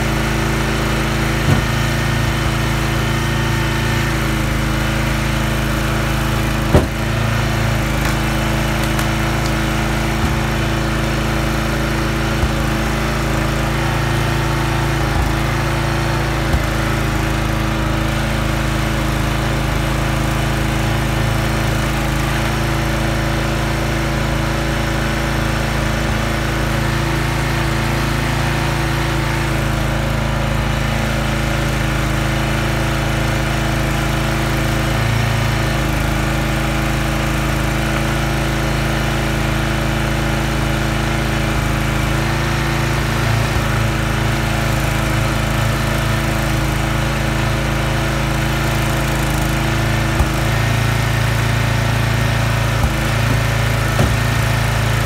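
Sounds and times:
log splitter engine running: 0.0 - 55.0
sharp knocks: 1.4 - 2.6, 6.6 - 10.8, 52.8 - 54.6.

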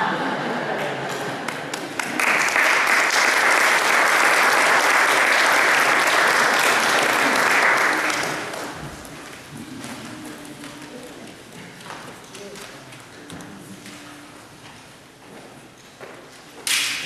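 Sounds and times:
congregation applauding: 1.4 - 10.0.

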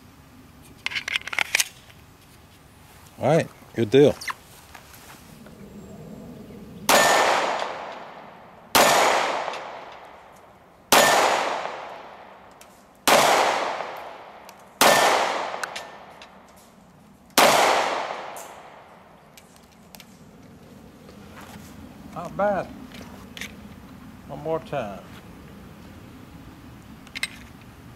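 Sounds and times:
pistol shots with echo: 6.9 - 10.2, 10.9 - 12.4, 13.0 - 16.2, 17.4 - 18.9.

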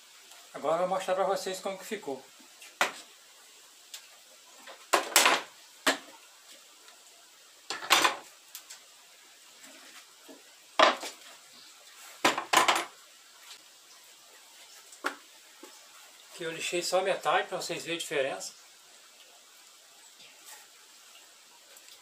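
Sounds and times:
wooden boards knocking on workbench: 4.9 - 6.1, 10.8 - 11.2, 12.2 - 12.9.

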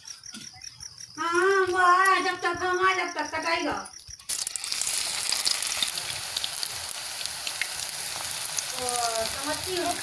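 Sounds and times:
batter sizzling in hot oil: 4.3 - 10.0.

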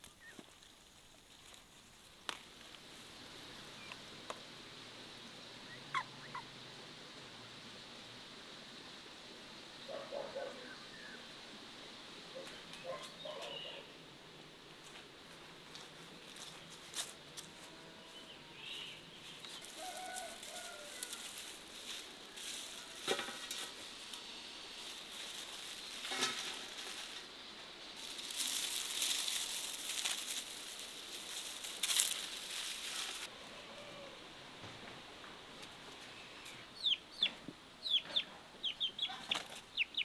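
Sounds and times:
dried plants rustling: 0.0 - 3.2, 14.7 - 17.8, 18.6 - 34.0
birds chirping: 12.3 - 14.0, 36.1 - 40.0.

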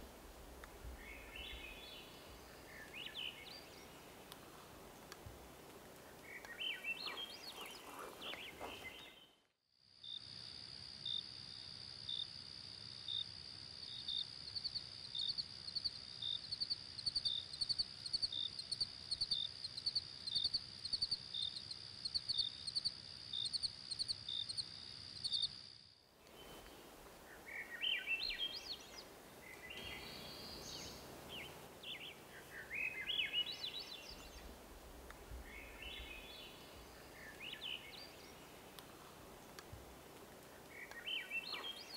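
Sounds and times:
songbirds singing: 0.8 - 5.2, 5.9 - 9.4, 26.2 - 41.9
cricket-like chirps: 9.9 - 34.6, 39.6 - 41.9.

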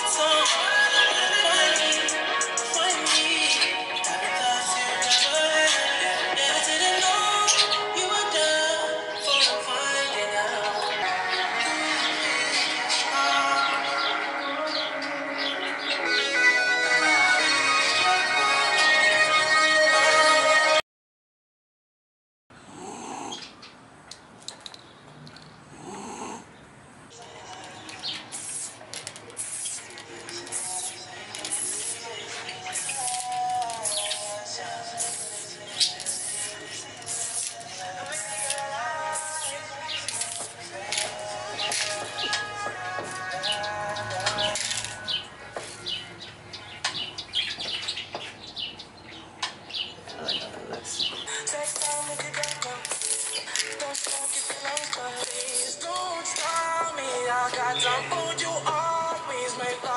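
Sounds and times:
small birds chirping: 2.6 - 8.0, 9.1 - 16.1, 22.8 - 58.4
dog snoring: 22.6 - 23.4, 25.7 - 26.5
spray-paint can hissing: 28.1 - 40.6, 51.5 - 55.8.

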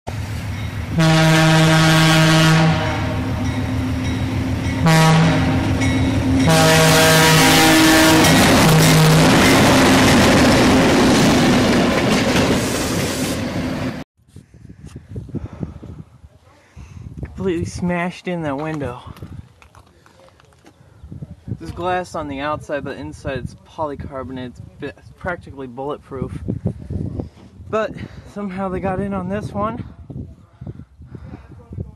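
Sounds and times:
passing train rumble: 0.1 - 14.0
locomotive air horn blasts: 0.9 - 3.4, 4.8 - 5.8, 6.4 - 9.4.

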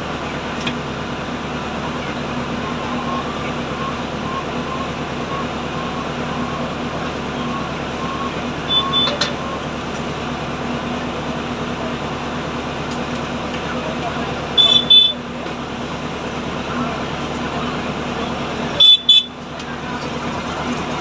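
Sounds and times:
steady mechanical hum: 0.0 - 21.0
brief high beep: 7.4 - 9.6.

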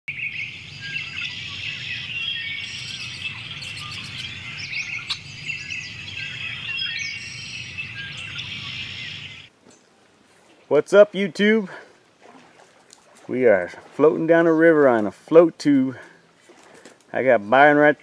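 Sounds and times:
birds chirping and calling: 0.1 - 9.5
steady low hum: 0.3 - 9.5.

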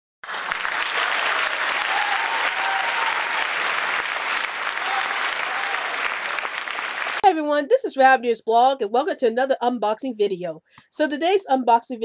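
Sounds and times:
crowd applause: 0.2 - 7.2.

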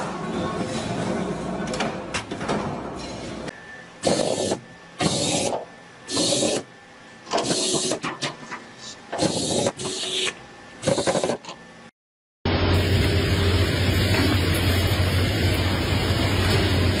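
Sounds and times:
labelling machine whirring bursts: 4.0 - 8.0, 9.1 - 11.4.

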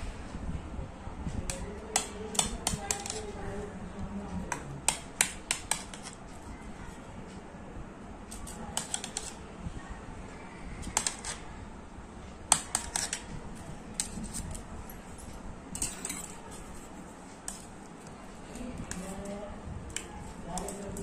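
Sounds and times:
knife scraping a metal bowl: 12.5 - 13.3.

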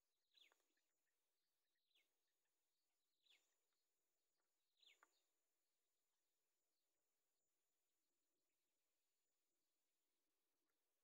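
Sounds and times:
faint bird chirping calls: 0.2 - 3.8, 4.4 - 5.5.

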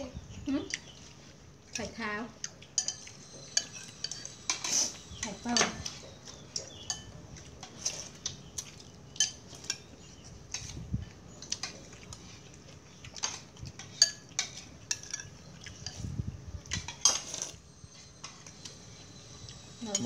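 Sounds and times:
spoons clinking on ceramic bowls: 2.7 - 8.0, 9.2 - 9.9, 13.2 - 16.0.

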